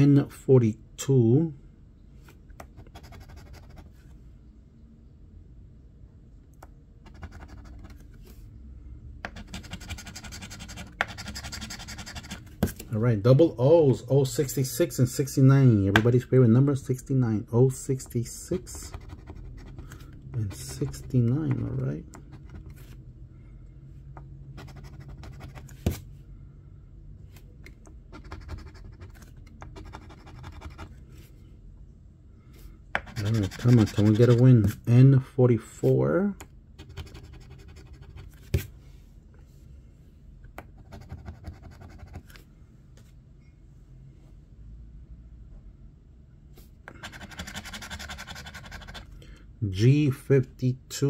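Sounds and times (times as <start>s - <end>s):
coin scratching lottery ticket: 2.8s - 3.9s, 7.1s - 8.0s, 9.3s - 12.5s, 18.7s - 19.9s, 24.6s - 25.7s, 28.1s - 30.9s, 33.0s - 34.5s, 36.8s - 38.3s, 46.9s - 49.1s
coin scraping scratch-off ticket: 33.0s - 34.4s, 47.0s - 49.0s.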